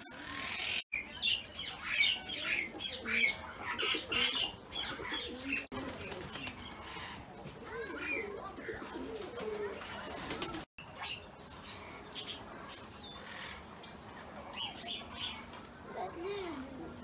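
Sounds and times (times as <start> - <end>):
small birds chirping: 0.0 - 17.0
doves cooing: 1.9 - 10.7.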